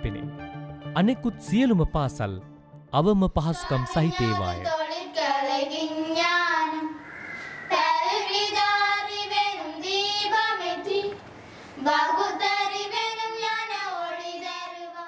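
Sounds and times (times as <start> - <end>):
girls singing together: 4.1 - 15.0.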